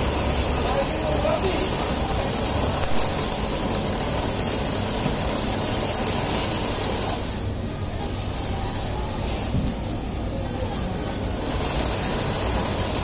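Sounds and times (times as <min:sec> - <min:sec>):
sewing machine stitching: 0:00.0 - 0:07.3, 0:11.3 - 0:13.0.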